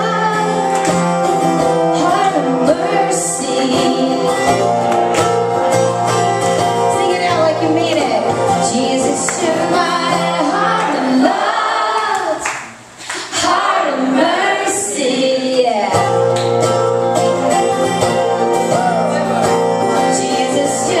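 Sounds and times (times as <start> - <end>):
woman singing: 0.0 - 0.8, 1.9 - 4.6, 6.8 - 12.5, 13.3 - 16.4, 20.0 - 21.0
strummed acoustic guitar: 0.0 - 11.4, 15.7 - 21.0.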